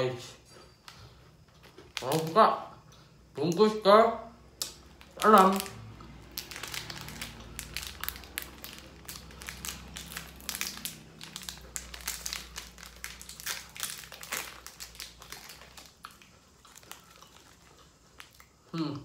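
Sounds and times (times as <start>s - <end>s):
plastic wrapper crinkling: 1.5s - 2.4s, 4.6s - 18.4s.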